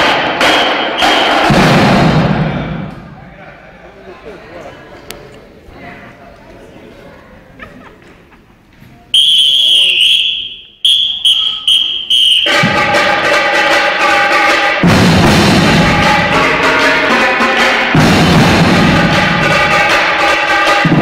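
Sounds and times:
marching drumline playing: 0.0 - 2.9, 11.6 - 21.0
whistle blasts: 0.4 - 1.5, 9.2 - 12.9
bass drums: 1.4 - 3.2, 14.8 - 17.2, 17.9 - 20.0.

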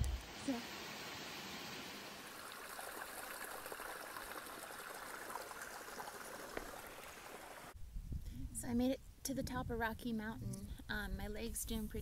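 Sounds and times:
stream trickling over rocks: 0.0 - 7.8.

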